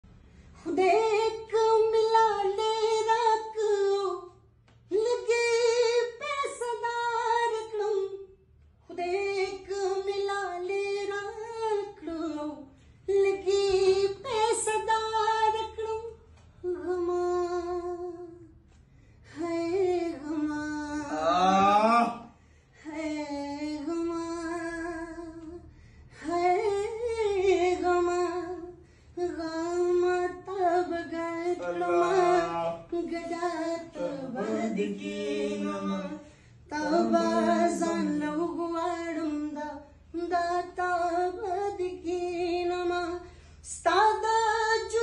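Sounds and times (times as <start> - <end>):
man singing unaccompanied: 31.1 - 38.5.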